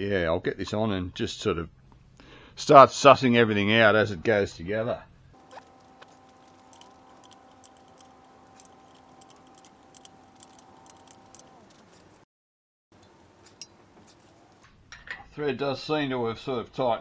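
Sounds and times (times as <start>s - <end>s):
faint steady hum: 5.4s - 12.2s
spanner clicking and scraping: 5.4s - 12.2s, 13.0s - 14.6s.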